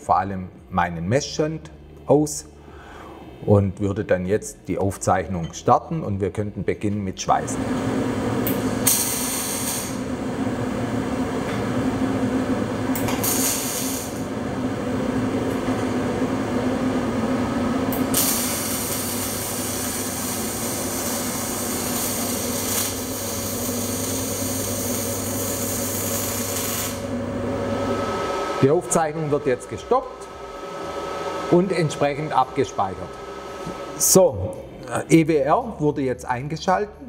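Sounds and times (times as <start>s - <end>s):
welding arc hissing and crackling: 8.4s - 10.1s, 12.9s - 14.3s, 17.9s - 27.2s.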